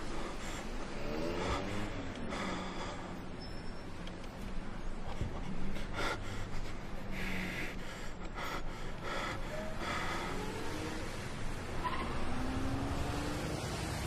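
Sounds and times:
person breathing heavily: 0:00.0 - 0:03.4, 0:04.9 - 0:11.2.

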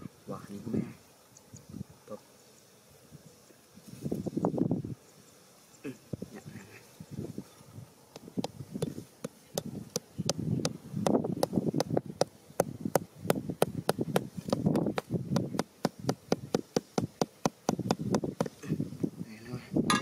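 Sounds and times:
dull low thuds: 0:08.2 - 0:18.6
hammer tapping stick into soil: 0:08.2 - 0:18.6.

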